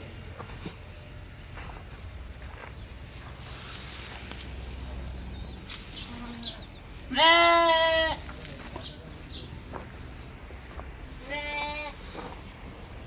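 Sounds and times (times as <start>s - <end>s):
sheep bleating: 6.1s - 8.3s, 11.2s - 12.0s.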